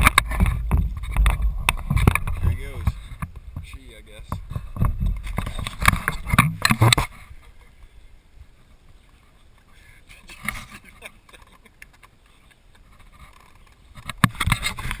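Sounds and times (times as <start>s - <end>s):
outdoor background: 0.0s - 15.0s
camera being handled: 4.5s - 7.1s, 12.9s - 15.0s.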